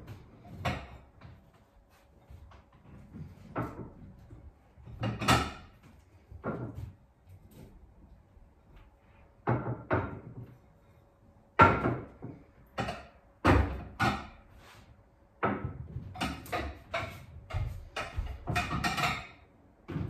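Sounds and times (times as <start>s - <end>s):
plates clinking and knocking: 15.4s - 19.4s.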